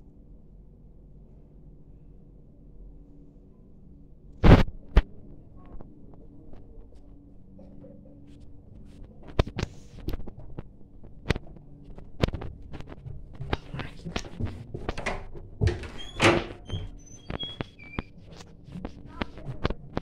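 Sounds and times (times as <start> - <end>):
footsteps on laminate floor: 10.3 - 20.0.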